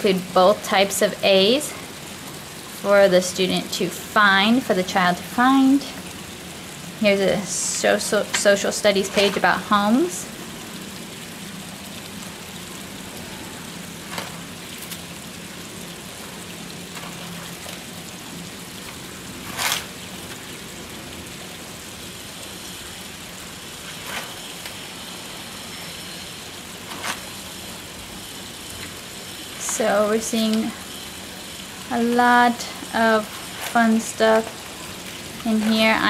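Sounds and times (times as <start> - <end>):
steady background hiss: 0.0 - 36.0
paper pages turning: 18.9 - 20.0.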